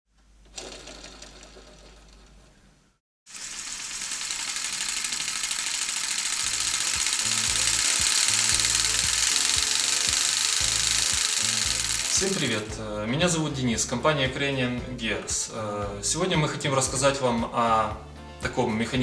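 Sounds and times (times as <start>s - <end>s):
model engine clattering: 0.5s - 2.4s, 3.4s - 12.6s.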